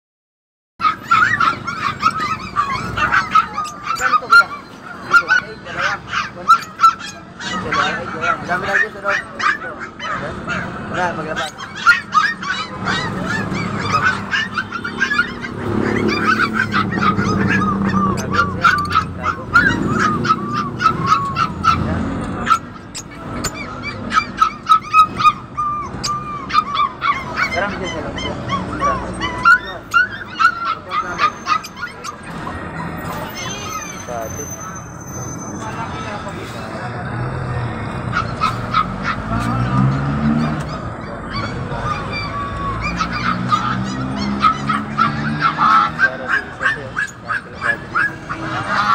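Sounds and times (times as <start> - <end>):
lovebirds squawking and chirping: 0.8 - 36.8, 40.2 - 48.9.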